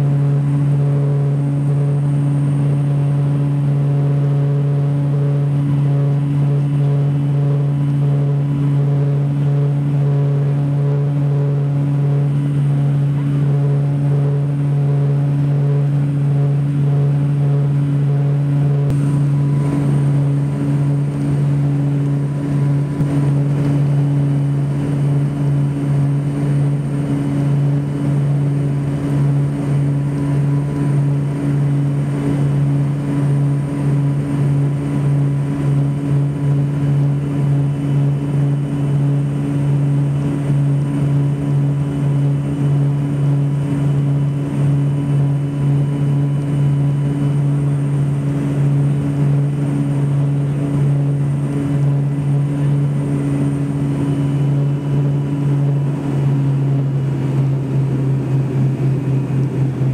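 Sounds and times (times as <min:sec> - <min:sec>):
engine and air noise: 0:00.0 - 0:59.9
propeller drone in cabin: 0:00.0 - 0:59.9.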